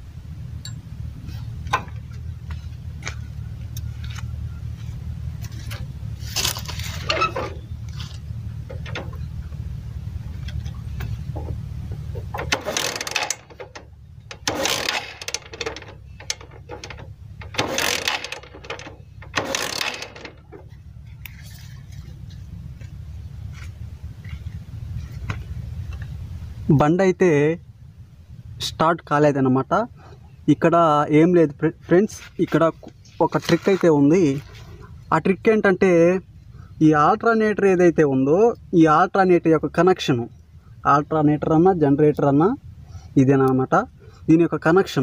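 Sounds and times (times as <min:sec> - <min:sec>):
steady low rumble: 0:00.0 - 0:45.0
motorcycle kick-starter cranking: 0:00.6 - 0:26.2.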